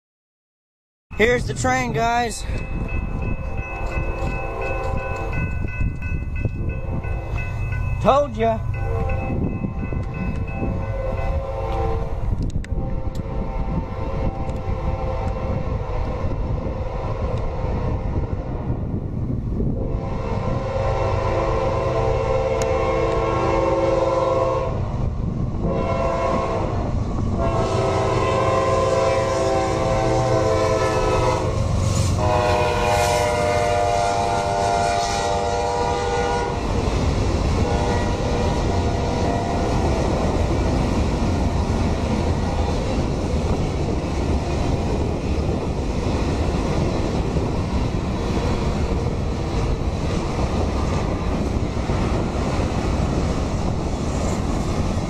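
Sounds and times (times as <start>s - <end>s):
train wheels rumbling on rails: 1.2s - 55.0s
locomotive horn blasts: 10.6s - 15.6s, 19.8s - 24.8s, 25.7s - 31.6s, 32.2s - 36.6s, 37.6s - 39.9s.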